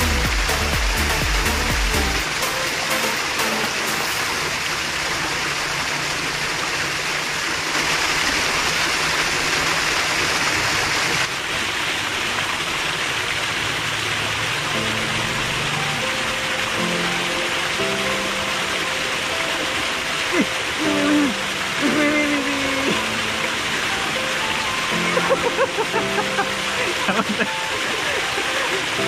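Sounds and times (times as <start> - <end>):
water rushing along a ditch: 0.0 - 29.0.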